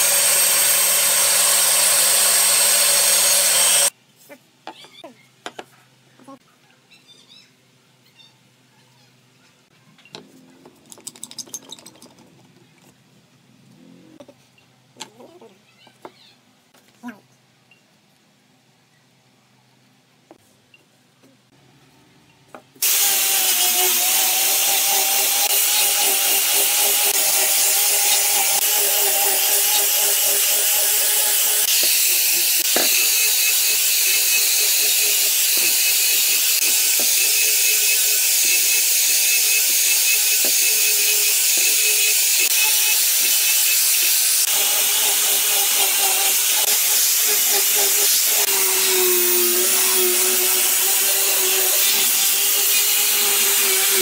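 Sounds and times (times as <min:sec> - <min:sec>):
angle grinder sanding wood: 0:00.0 - 0:03.9, 0:22.8 - 0:54.0.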